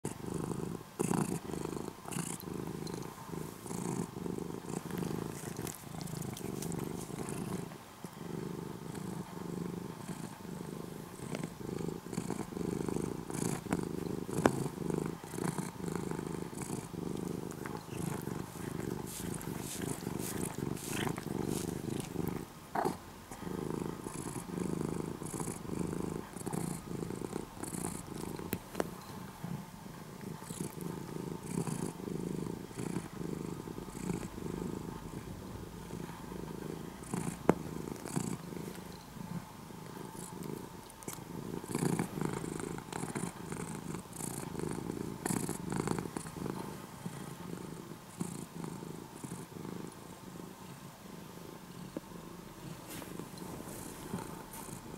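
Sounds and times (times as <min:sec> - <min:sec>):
cat purring: 0:00.0 - 0:54.9.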